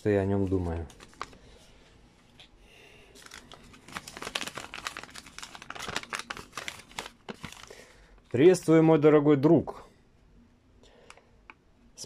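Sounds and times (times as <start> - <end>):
paper crinkling and rustling: 0.1 - 2.5, 3.1 - 8.4.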